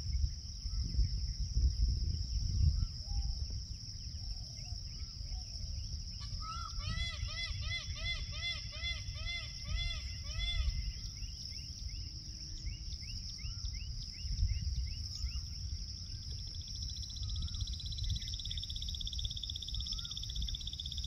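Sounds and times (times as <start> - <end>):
insects droning shrilly: 0.0 - 21.0
pulsing insect trill: 0.0 - 21.0
bird wavering call: 6.2 - 11.1.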